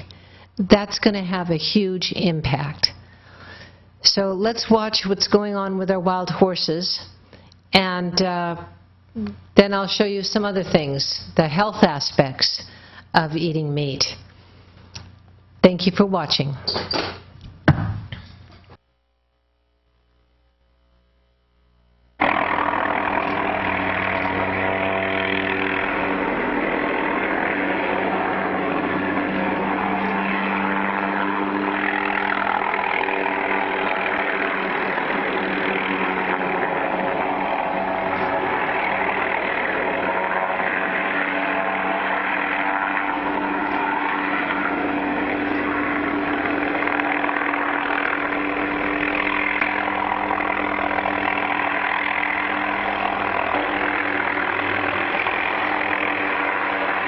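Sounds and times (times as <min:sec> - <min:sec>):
engine running steadily: 0:22.2 - 0:57.0.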